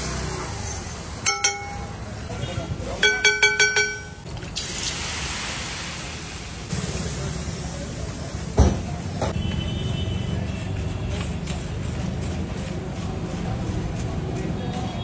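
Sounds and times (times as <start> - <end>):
water sizzling on hot griddle: 4.3 - 9.3.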